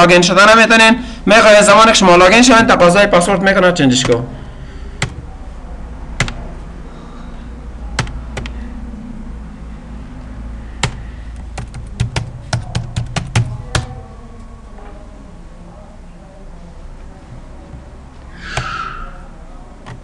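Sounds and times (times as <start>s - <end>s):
low steady hum: 0.0s - 20.0s
keyboard keystrokes: 6.2s - 6.4s, 8.0s - 8.6s, 10.8s - 13.9s
computer mouse clicks: 8.0s - 8.6s.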